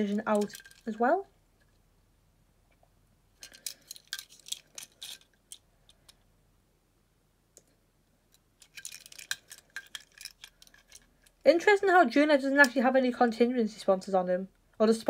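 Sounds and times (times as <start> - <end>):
toy cars clicking and scraping: 0.0 - 1.2, 3.4 - 6.2, 8.3 - 12.8.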